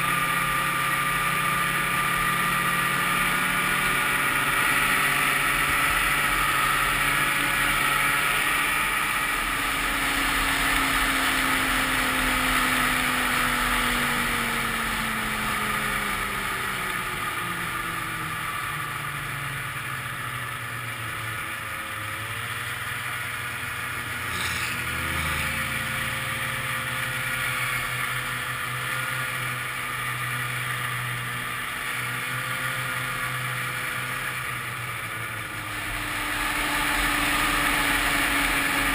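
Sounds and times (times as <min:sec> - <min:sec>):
snowmobile engine running: 0:00.0 - 0:38.9.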